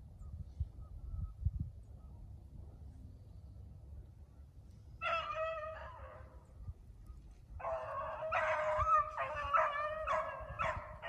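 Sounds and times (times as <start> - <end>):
hounds baying: 5.0 - 6.4, 7.6 - 11.0.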